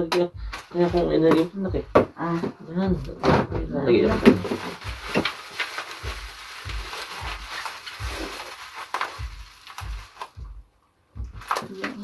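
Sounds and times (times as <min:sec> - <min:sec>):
soft low thumps: 0:00.0 - 0:12.0
plastic wrap crinkling: 0:04.2 - 0:10.5, 0:11.4 - 0:12.0.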